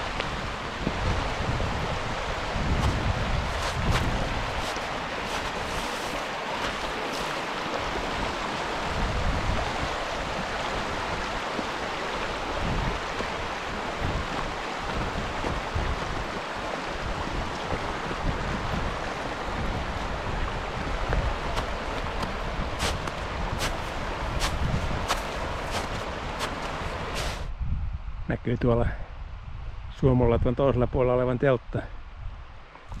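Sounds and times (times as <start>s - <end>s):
wind buffeting microphone: 0.0s - 30.6s
wind rushing: 0.8s - 11.2s, 22.3s - 28.3s.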